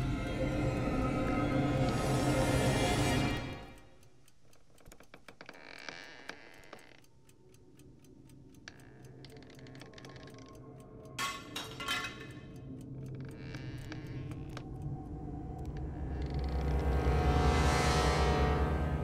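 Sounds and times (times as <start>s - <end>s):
low hum: 12.6s - 19.0s.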